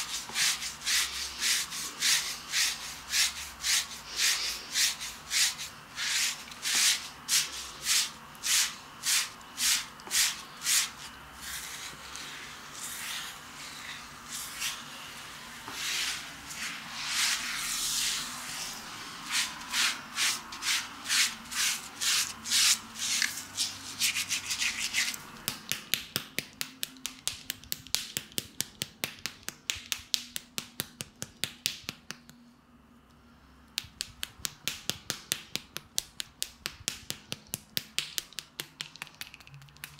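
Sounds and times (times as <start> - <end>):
bristle brush scrubbing skin: 0.0 - 25.2.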